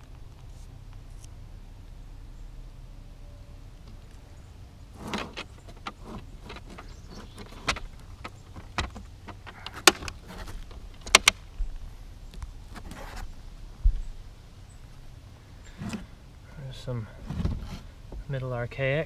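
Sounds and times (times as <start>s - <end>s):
display case handling clicks and knocks: 5.0s - 11.4s.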